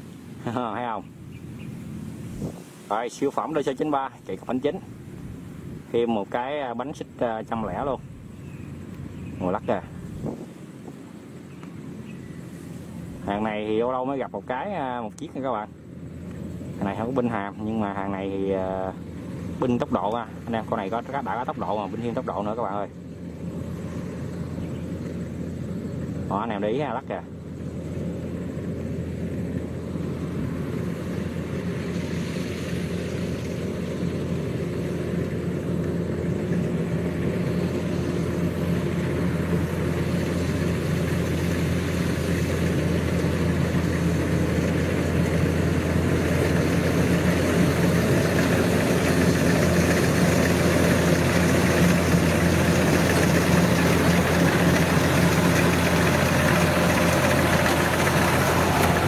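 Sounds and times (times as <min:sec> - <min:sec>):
combine harvester engine hum: 0:00.0 - 0:59.0
clatter of threshing machinery: 0:39.0 - 0:59.0.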